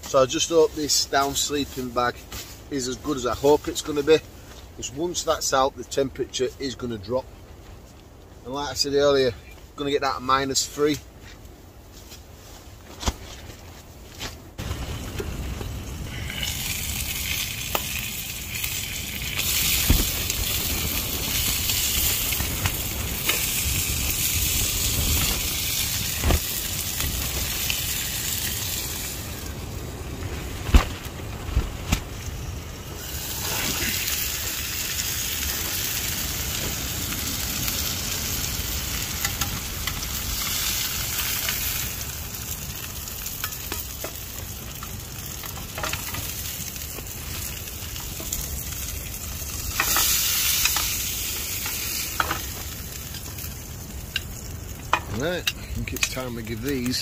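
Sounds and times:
burgers sizzling in a grill pan: 0:15.7 - 0:30.1, 0:32.4 - 0:57.0.

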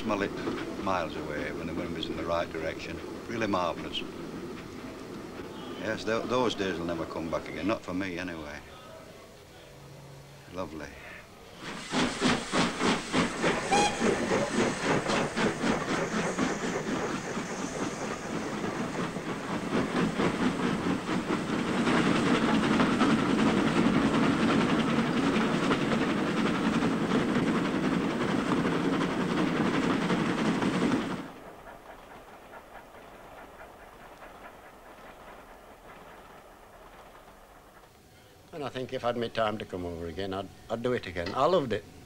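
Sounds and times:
faint hiss: 0:00.0 - 0:23.3
steam locomotive exhaust beating: 0:11.5 - 0:38.1.

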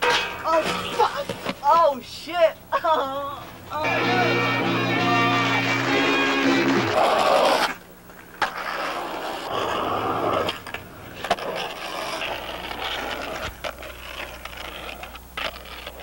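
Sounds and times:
skateboard rolling on asphalt: 0:04.1 - 0:16.0.

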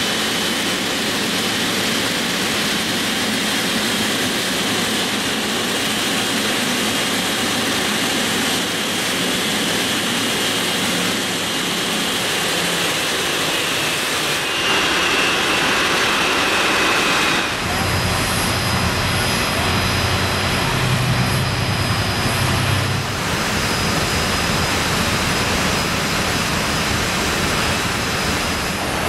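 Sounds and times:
jet engines idling: 0:00.0 - 0:29.0.

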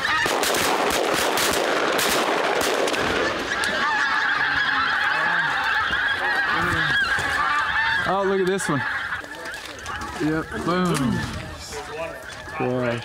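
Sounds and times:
geese honking: 0:00.0 - 0:13.0.

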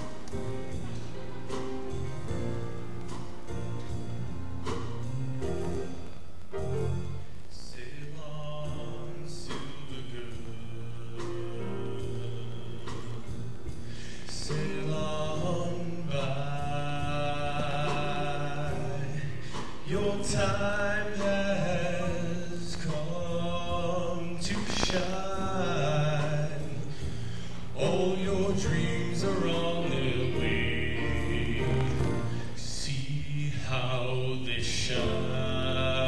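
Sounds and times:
backing music: 0:00.0 - 0:36.0
boy singing into microphone: 0:07.5 - 0:36.0.

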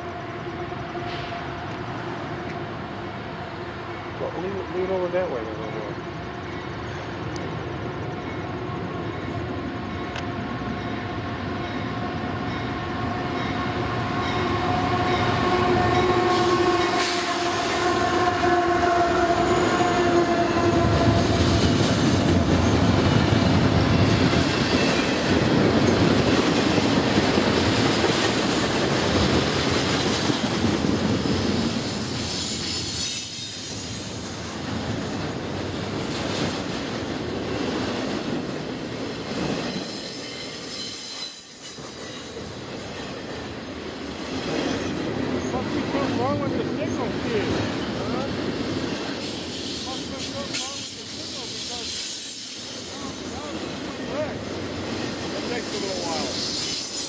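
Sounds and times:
freight train rumbling past: 0:00.0 - 0:57.0
train horn: 0:12.8 - 0:22.9
wheel squeal on rails: 0:31.6 - 0:34.1, 0:39.2 - 0:43.5, 0:48.8 - 0:52.9, 0:55.4 - 0:57.0.

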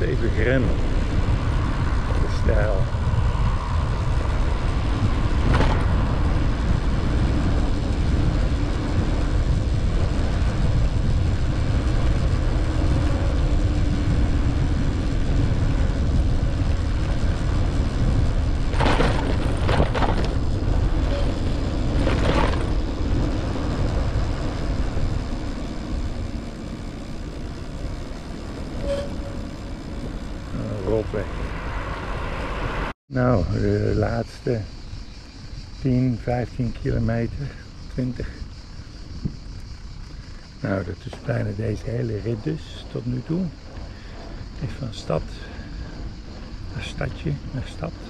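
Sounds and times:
road noise: 0:00.0 - 0:48.0
wind rumble on microphone: 0:00.0 - 0:48.0
sharp clattering knocks: 0:18.7 - 0:20.4.

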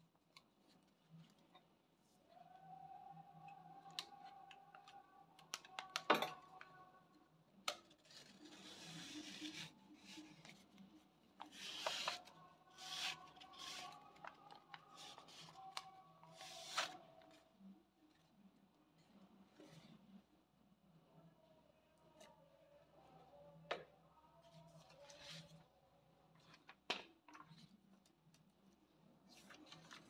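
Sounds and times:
paper rustling and crinkling: 0:08.0 - 0:17.0.

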